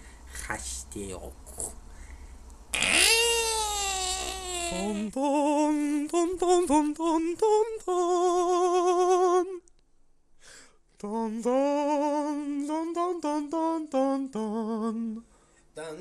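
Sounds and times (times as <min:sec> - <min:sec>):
man singing with heavy vibrato: 0:02.8 - 0:09.6, 0:11.0 - 0:15.2.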